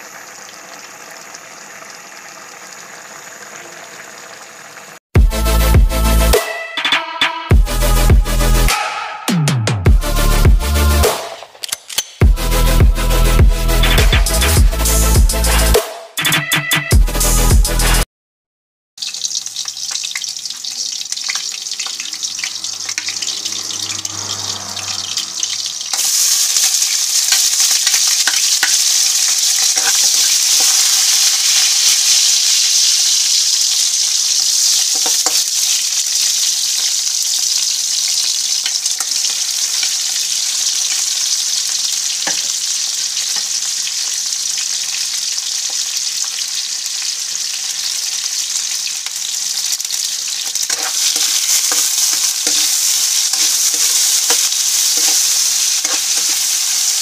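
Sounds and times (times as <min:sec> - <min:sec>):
onions sizzling in oil: 0:00.0 - 0:05.0, 0:19.0 - 0:57.0.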